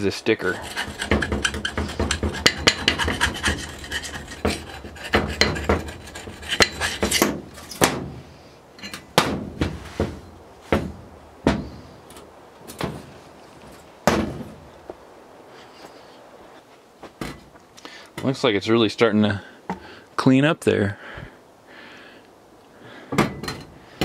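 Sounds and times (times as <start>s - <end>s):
wire brush scrubbing metal: 0.4s - 7.8s
rubbing block scraping: 0.5s - 7.8s.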